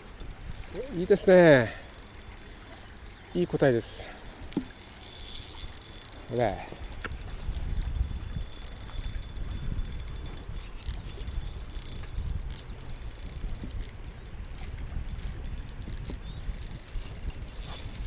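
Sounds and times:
fishing reel drag clicking: 0:00.0 - 0:18.0
wind rumble on microphone: 0:06.3 - 0:18.0.

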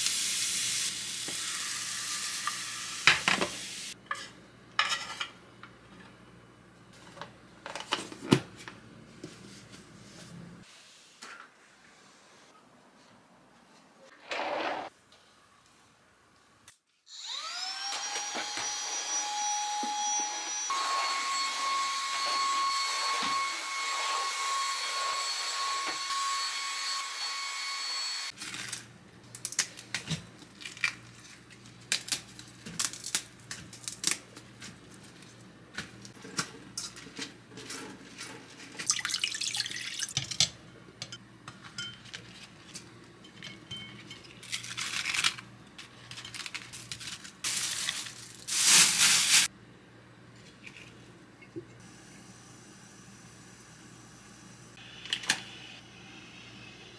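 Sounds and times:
vacuum cleaner motor whine: 0:17.1 - 0:28.3.

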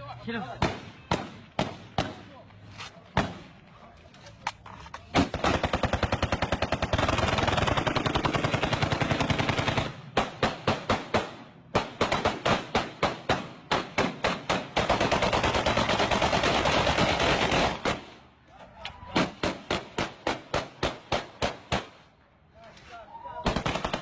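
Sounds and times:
rifle gunfire: 0:05.2 - 0:18.1, 0:23.5 - 0:24.0.

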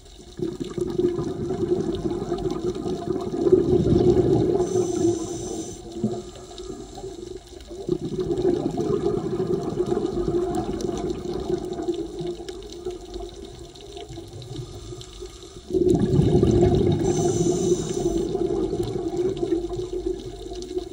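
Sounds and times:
underwater exhaled bubbles: 0:00.0 - 0:20.9.

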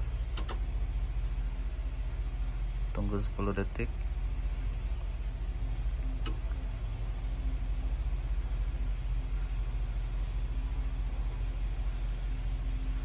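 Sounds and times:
faint hum: 0:00.0 - 0:13.0
low machine rumble: 0:00.0 - 0:13.0
sharp click: 0:00.3 - 0:00.6, 0:06.2 - 0:06.4.

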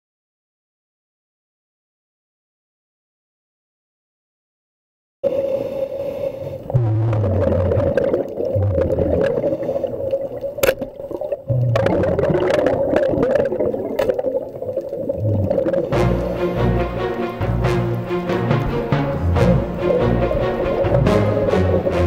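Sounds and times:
diver breathing on a regulator: 0:05.2 - 0:06.8, 0:09.1 - 0:10.3
rumble of exhaled bubbles: 0:06.6 - 0:17.8, 0:18.5 - 0:22.0
music: 0:15.8 - 0:22.0.

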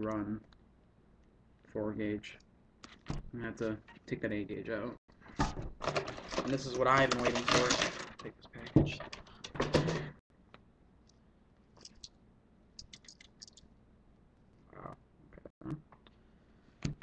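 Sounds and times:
plastic packaging crinkling: 0:05.8 - 0:08.3.

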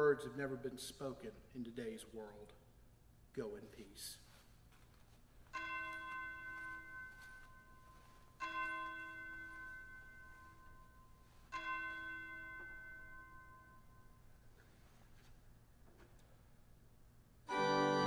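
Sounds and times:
bell ringing: 0:05.5 - 0:14.3.

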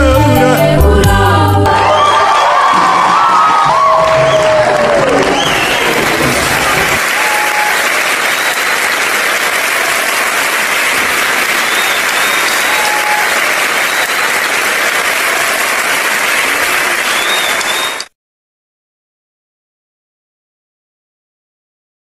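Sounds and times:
crowd applauding: 0:01.7 - 0:18.1.

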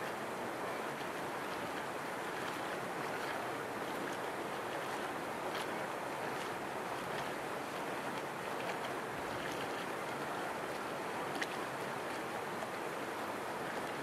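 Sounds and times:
boat wake washing: 0:00.0 - 0:14.0.

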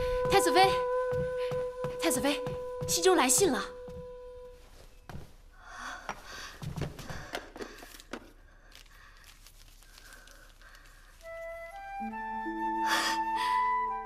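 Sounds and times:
flute melody: 0:00.0 - 0:05.1, 0:11.2 - 0:14.0
paper rustling: 0:06.7 - 0:12.0.

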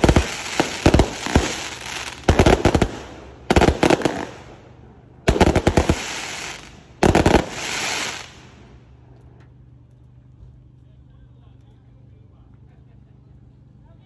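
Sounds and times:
fireworks rapid-fire bangs: 0:00.0 - 0:04.7, 0:05.3 - 0:08.5
fireworks crackling: 0:00.0 - 0:08.9.

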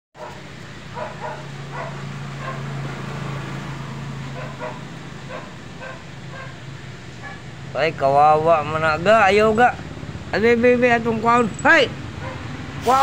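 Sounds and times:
dog barking: 0:00.2 - 0:02.7, 0:04.3 - 0:06.6, 0:07.2 - 0:07.5, 0:12.2 - 0:12.5.

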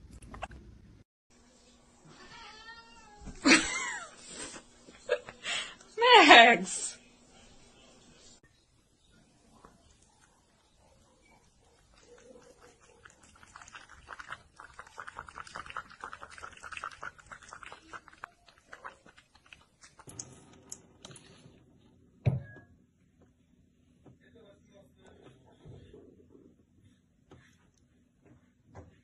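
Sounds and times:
kitten licking container: 0:11.9 - 0:20.3.

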